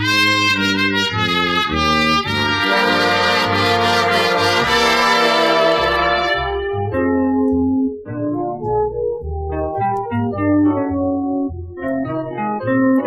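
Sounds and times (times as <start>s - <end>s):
brass section: 0.0s - 6.9s
easy-listening orchestral music: 0.0s - 13.0s.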